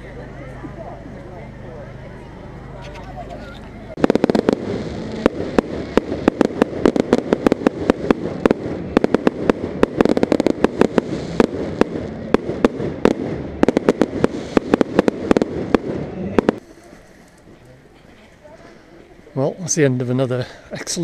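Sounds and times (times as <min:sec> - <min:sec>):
fireworks bangs: 0:03.9 - 0:16.7
fireworks crackle: 0:03.9 - 0:17.6.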